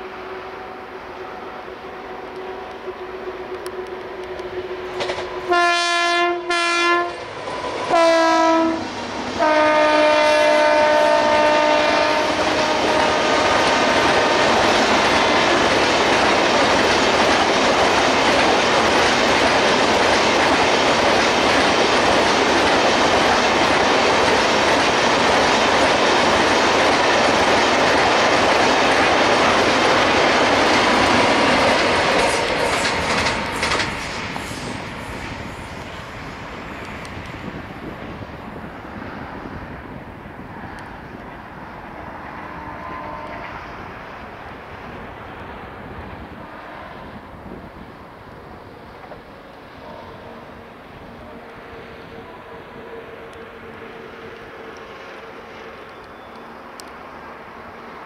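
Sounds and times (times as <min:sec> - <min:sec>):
train passing with clickety-clack: 0:00.0 - 0:58.0
locomotive horn blasts: 0:00.4 - 0:07.2, 0:07.9 - 0:14.6, 0:42.4 - 0:43.8, 0:49.8 - 0:56.4.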